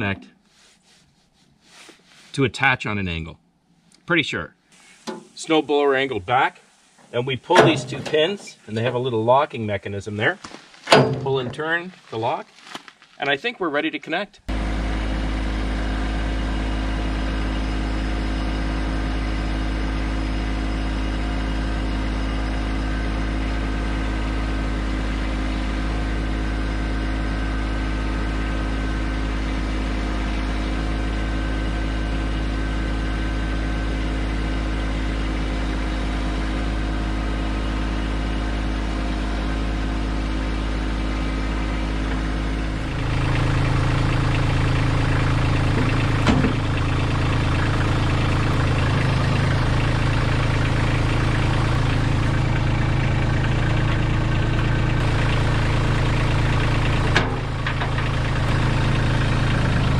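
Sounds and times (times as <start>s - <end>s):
tractor diesel engine running: 5.0s - 12.3s, 14.5s - 59.9s
metallic clunks of hitch coupling: 7.5s - 8.6s, 10.9s - 11.6s.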